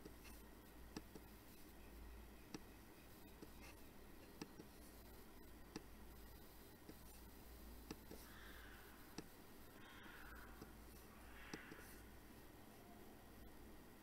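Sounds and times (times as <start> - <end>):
faint low hum: 0.0 - 14.0
computer mouse clicking: 0.9 - 1.3, 2.5 - 7.2, 7.8 - 9.4, 11.4 - 11.9.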